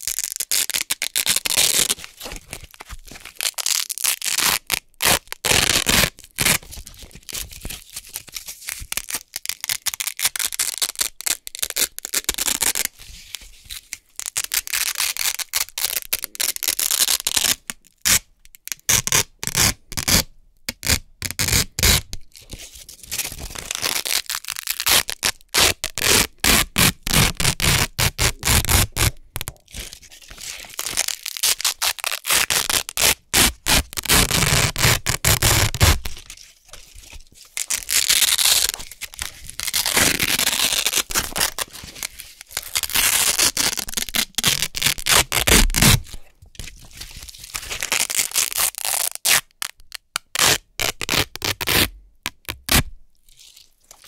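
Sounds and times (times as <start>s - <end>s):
velcro strips ripping: 0.0s - 13.0s, 13.8s - 46.2s, 47.0s - 54.0s.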